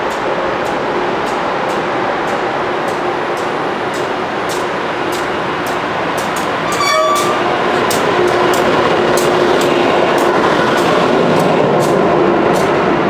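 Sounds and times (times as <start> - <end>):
train passing with wheels clicking: 0.0 - 13.0
high-pitched chirp: 6.7 - 7.5.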